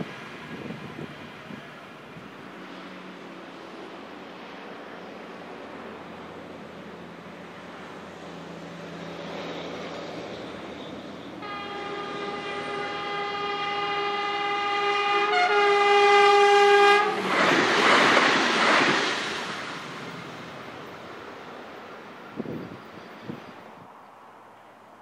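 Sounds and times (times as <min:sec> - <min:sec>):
train rumbling past: 0:00.0 - 0:24.8
train horn blast: 0:11.4 - 0:17.3.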